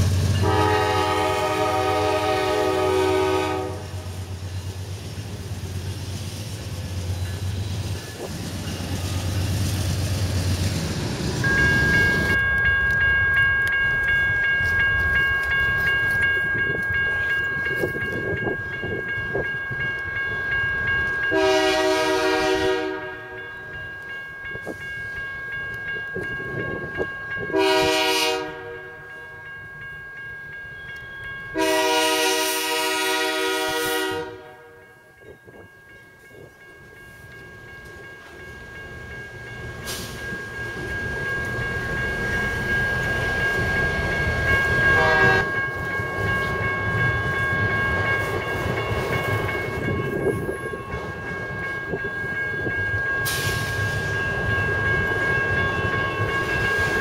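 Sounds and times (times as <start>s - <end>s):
train cars rumbling past: 0.0s - 57.0s
locomotive air horn: 0.4s - 4.1s, 21.3s - 23.4s, 27.5s - 29.0s, 31.6s - 34.8s, 44.9s - 45.6s.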